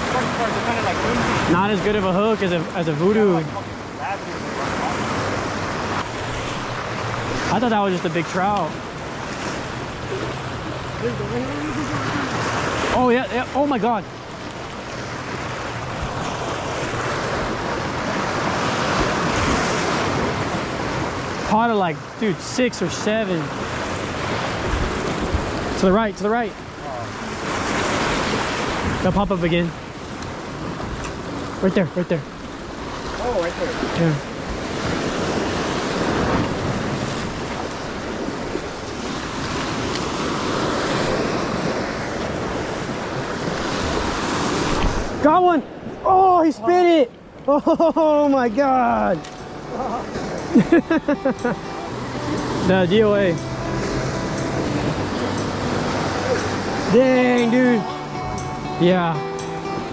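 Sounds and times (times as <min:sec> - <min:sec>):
ocean surf washing: 0:00.0 - 0:59.9
wind: 0:00.0 - 0:59.9
wind buffeting microphone: 0:23.4 - 0:31.6, 0:32.2 - 0:46.1.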